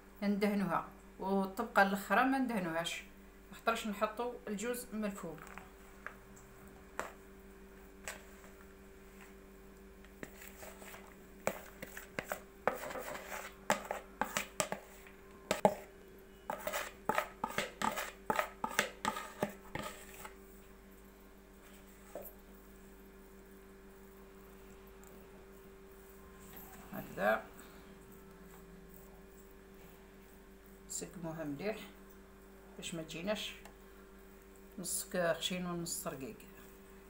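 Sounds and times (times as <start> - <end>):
soft spreading of filling: 5.2 - 30.9
spoon scraping plastic bowl: 10.1 - 20.4.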